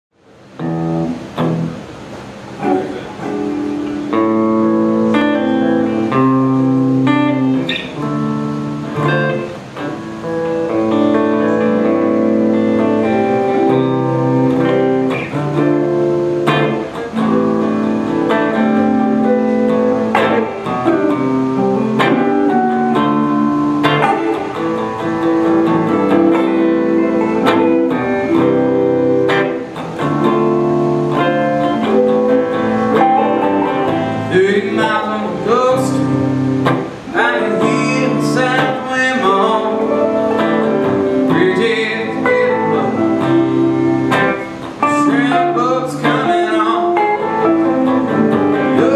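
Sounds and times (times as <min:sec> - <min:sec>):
electric guitars playing: 0:00.2 - 0:48.9.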